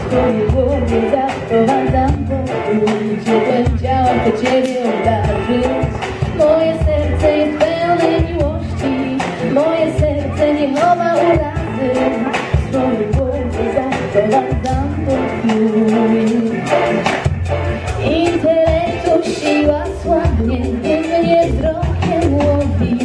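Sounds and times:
backing track with steady beat: 0:00.0 - 0:23.0
woman singing pop song: 0:00.0 - 0:23.0.

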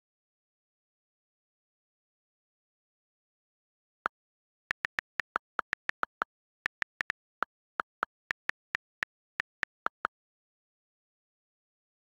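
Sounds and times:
on-screen keyboard key clicks: 0:04.7 - 0:10.1.

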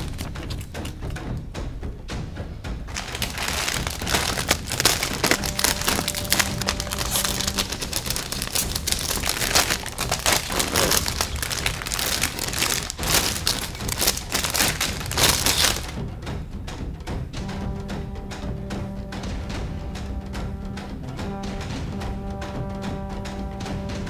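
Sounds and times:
plastic bags crinkling: 0:00.0 - 0:00.9, 0:02.9 - 0:16.0
faint background music: 0:00.0 - 0:24.0.

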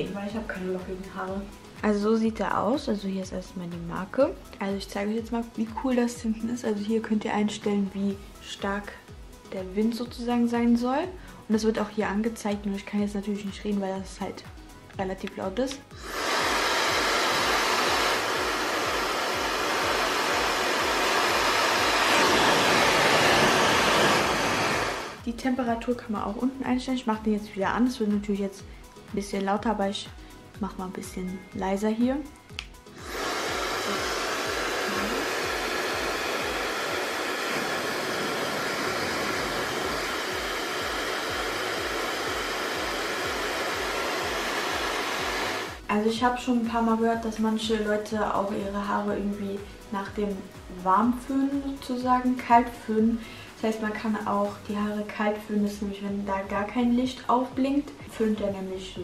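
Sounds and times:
hair dryer blowing air: 0:00.0 - 0:02.0, 0:15.4 - 0:25.3, 0:32.6 - 0:48.0.

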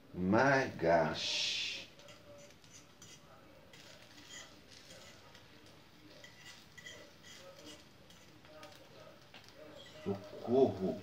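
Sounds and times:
fork scraping frying pan: 0:02.0 - 0:08.8, 0:09.7 - 0:11.0.

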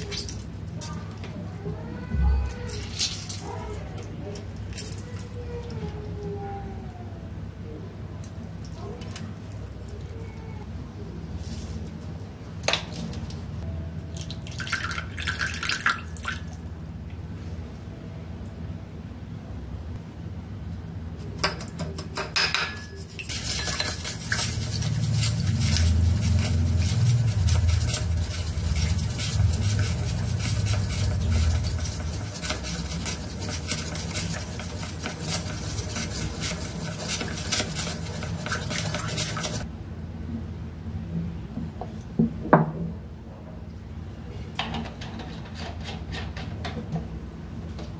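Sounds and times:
steady low hum: 0:00.0 - 0:15.0, 0:16.1 - 0:47.9
spoon clicking and scraping bowl: 0:21.4 - 0:39.6.

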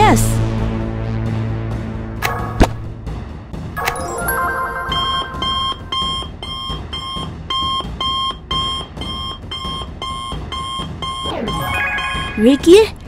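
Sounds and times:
rapid electronic beeping: 0:04.8 - 0:12.8.

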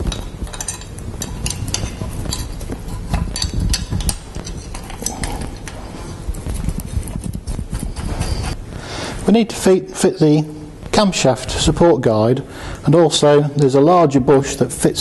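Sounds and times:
metal tool clinking on bolt: 0:00.5 - 0:02.6.

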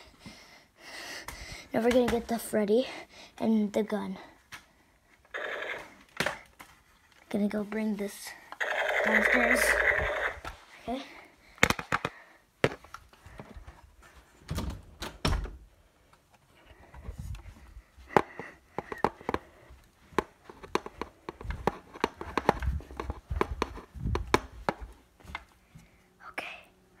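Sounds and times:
handling knocks and thumps: 0:20.1 - 0:25.4.

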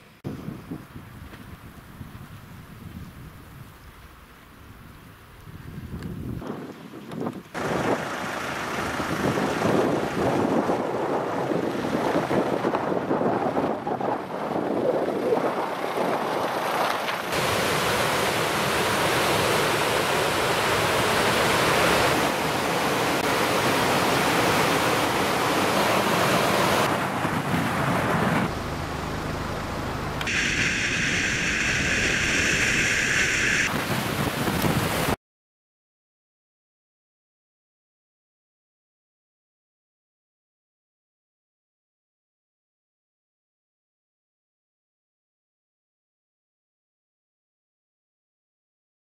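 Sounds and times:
wind gusting on microphone: 0:00.2 - 0:28.6, 0:30.3 - 0:35.2
river rushing over rocks: 0:16.6 - 0:28.3
car road noise from inside: 0:28.3 - 0:30.4.

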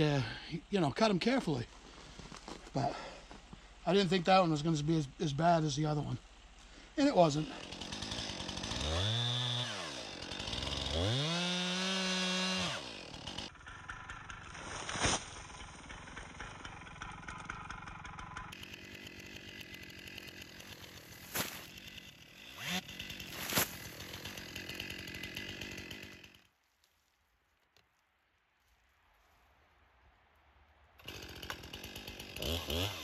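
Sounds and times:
outdoor background: 0:00.0 - 0:33.0
chainsaw revving: 0:07.1 - 0:26.4, 0:31.0 - 0:33.0.

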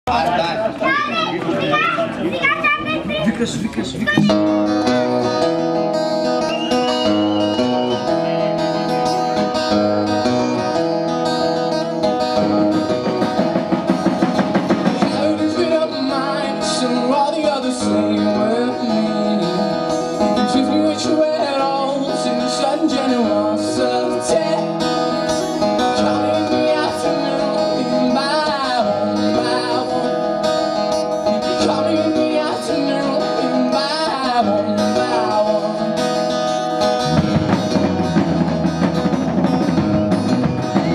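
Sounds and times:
acoustic guitar strummed: 0:04.1 - 0:40.9
man singing: 0:14.8 - 0:37.4.

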